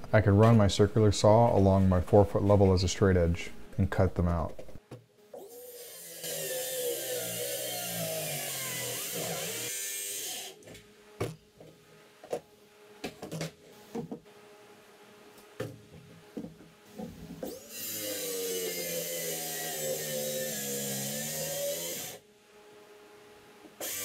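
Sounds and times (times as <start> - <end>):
circular saw cutting plywood: 5.4 - 10.6, 17.5 - 22.2, 23.8 - 24.0.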